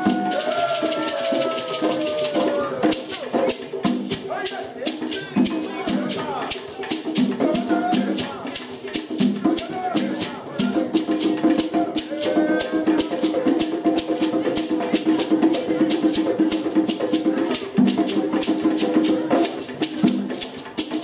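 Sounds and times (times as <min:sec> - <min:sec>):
voices: 0:00.0 - 0:20.9
hand drums: 0:00.0 - 0:21.0
hand shaker rattling: 0:00.0 - 0:21.0.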